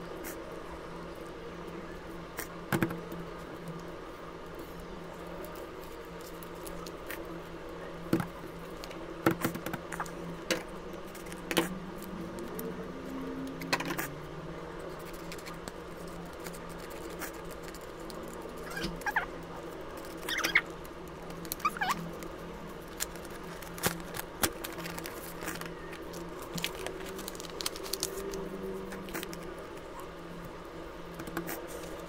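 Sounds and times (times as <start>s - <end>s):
steady low hum: 0.0s - 32.0s
paper rustling and crinkling: 14.8s - 30.0s, 31.1s - 32.0s.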